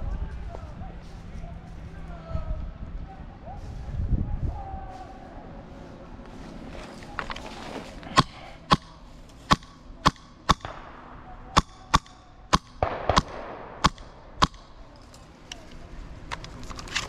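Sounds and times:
airsoft gun shots: 0:08.1 - 0:14.8.

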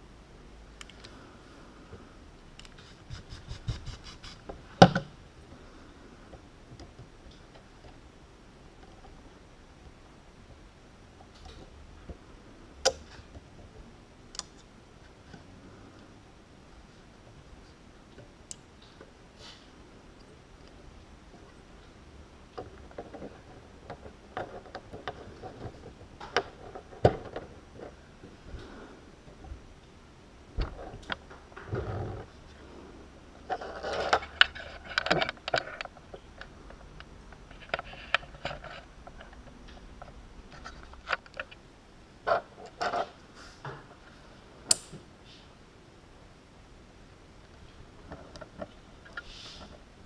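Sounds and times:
small parts clicking and knocking: 0:33.5 - 0:41.6
plug connectors clicking together: 0:44.7 - 0:45.0.

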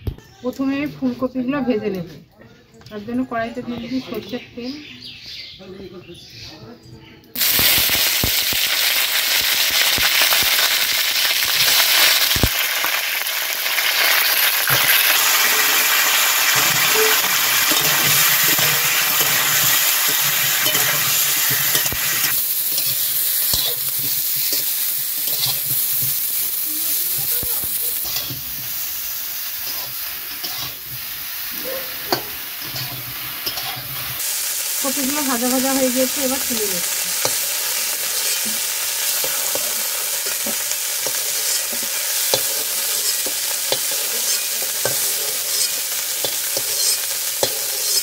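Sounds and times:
vegetables sizzling in oil: 0:07.4 - 0:48.0
metal spatula scraping pan: 0:14.7 - 0:26.2, 0:29.6 - 0:31.0, 0:32.1 - 0:34.2, 0:39.2 - 0:48.0.

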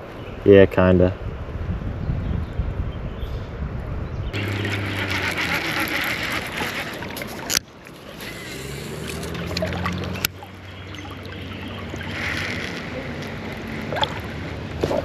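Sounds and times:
fishing reel click: 0:04.4 - 0:07.6
fishing reel gears whirring: 0:04.4 - 0:14.6.

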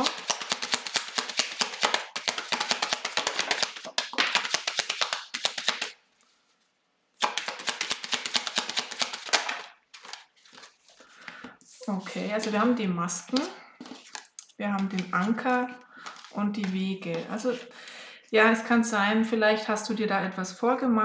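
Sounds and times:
cards being shuffled: 0:00.0 - 0:06.0, 0:07.2 - 0:12.6, 0:13.2 - 0:15.4, 0:16.0 - 0:17.7.

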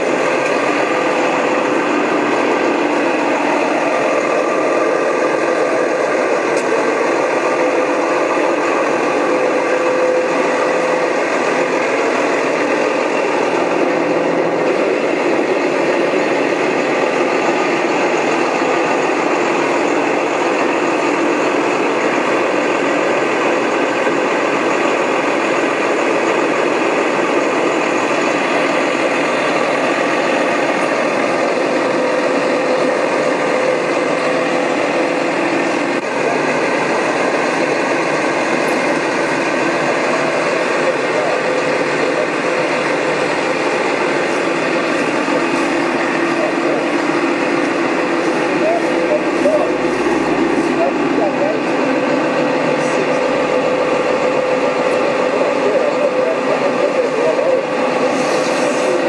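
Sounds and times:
engine running steadily: 0:00.0 - 0:59.0.

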